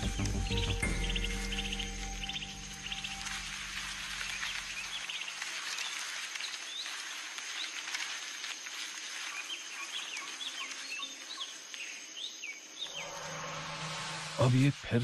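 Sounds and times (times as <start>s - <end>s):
background music chord: 0.0s - 4.6s, 12.8s - 15.0s
small birds chirping: 0.0s - 13.3s
steady hiss: 11.6s - 15.0s
high steady whine: 12.8s - 15.0s.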